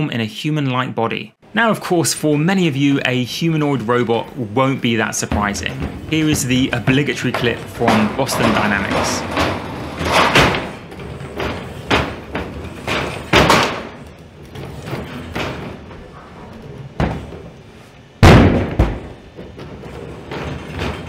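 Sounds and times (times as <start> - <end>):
robot feet thudding on wood: 5.2 - 14.0, 18.2 - 19.6.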